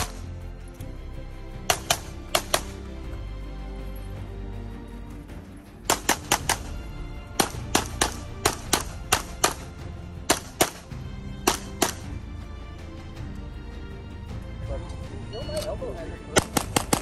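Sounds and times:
pistol shots: 0:00.0 - 0:00.3, 0:01.6 - 0:02.9, 0:05.9 - 0:12.2, 0:16.3 - 0:17.0
background music: 0:00.0 - 0:17.0.

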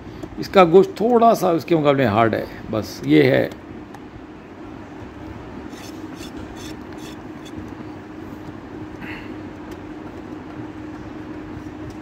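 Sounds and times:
knife on wooden chopping block: 0:05.7 - 0:07.6
motor drone: 0:05.7 - 0:07.6.

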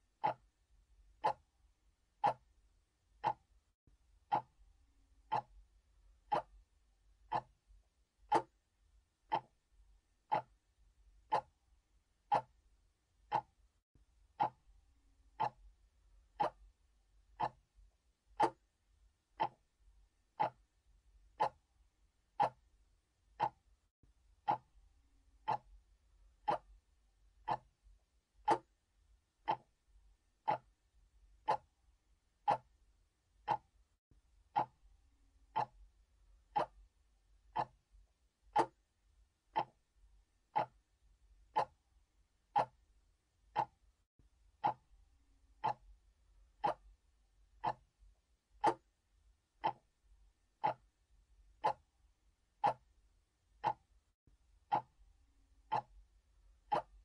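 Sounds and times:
mechanical clock ticking: 0:00.2 - 0:00.5, 0:01.2 - 0:01.5, 0:02.2 - 0:02.5, 0:03.2 - 0:03.5, 0:04.3 - 0:04.6, 0:05.2 - 0:05.6, 0:06.3 - 0:06.6, 0:07.3 - 0:07.6, 0:08.2 - 0:08.6, 0:09.3 - 0:09.6, 0:10.3 - 0:10.6, 0:11.2 - 0:11.6, 0:12.3 - 0:12.6, 0:13.2 - 0:13.6, 0:14.3 - 0:14.7, 0:15.3 - 0:15.7, 0:16.4 - 0:16.8, 0:17.4 - 0:17.7, 0:18.4 - 0:18.7, 0:19.4 - 0:19.7, 0:20.4 - 0:20.7, 0:21.3 - 0:21.7, 0:22.3 - 0:22.7, 0:23.3 - 0:23.7, 0:24.4 - 0:24.8, 0:25.4 - 0:25.8, 0:26.4 - 0:26.8, 0:27.4 - 0:27.8, 0:28.4 - 0:28.8, 0:29.4 - 0:29.8, 0:30.4 - 0:30.8, 0:31.4 - 0:31.8, 0:32.4 - 0:32.8, 0:33.4 - 0:33.8, 0:34.5 - 0:34.8, 0:35.5 - 0:35.9, 0:36.5 - 0:36.9, 0:37.5 - 0:37.8, 0:38.5 - 0:38.8, 0:39.5 - 0:39.9, 0:40.5 - 0:40.9, 0:41.5 - 0:41.8, 0:42.5 - 0:42.8, 0:43.5 - 0:43.8, 0:44.6 - 0:44.9, 0:45.6 - 0:46.0, 0:46.6 - 0:47.0, 0:47.6 - 0:47.9, 0:48.6 - 0:48.9, 0:49.6 - 0:50.0, 0:50.6 - 0:51.0, 0:51.6 - 0:51.9, 0:52.6 - 0:52.9, 0:53.6 - 0:53.9, 0:54.7 - 0:55.0, 0:55.6 - 0:56.0, 0:56.7 - 0:57.0.

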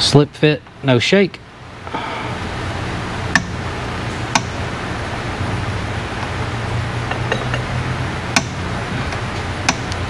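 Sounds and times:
low shop hum: 0:00.0 - 0:10.0
metal tappet clicks: 0:03.3 - 0:03.6, 0:04.3 - 0:04.6, 0:08.4 - 0:10.0.

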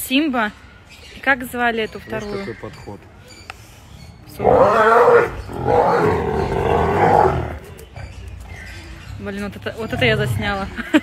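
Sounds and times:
lions growling: 0:04.3 - 0:08.2, 0:09.7 - 0:10.7.

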